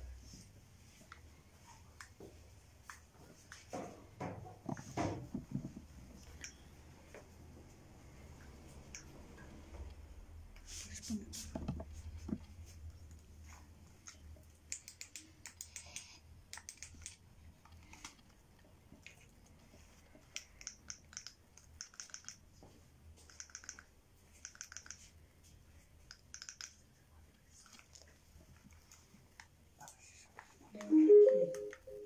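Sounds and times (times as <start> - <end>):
faint light clicks in bursts: 26.0 - 26.8.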